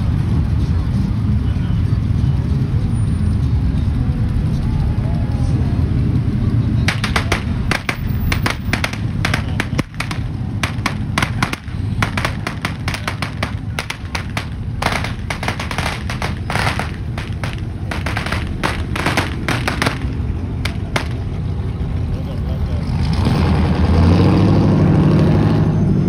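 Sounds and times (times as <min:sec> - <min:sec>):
low engine rumble: 0:00.0 - 0:26.0
sharp pops and bangs: 0:06.9 - 0:21.4.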